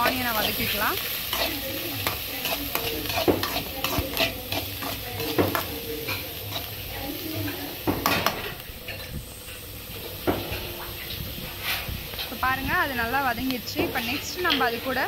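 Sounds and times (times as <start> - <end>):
onions sizzling in hot oil: 0.0 - 15.0
spatula clacking against pan: 1.3 - 6.7.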